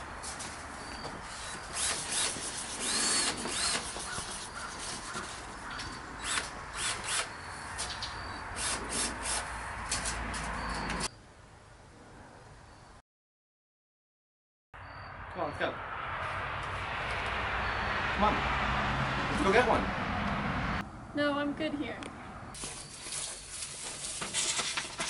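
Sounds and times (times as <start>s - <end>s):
power drill in short bursts: 1.3s - 4.4s.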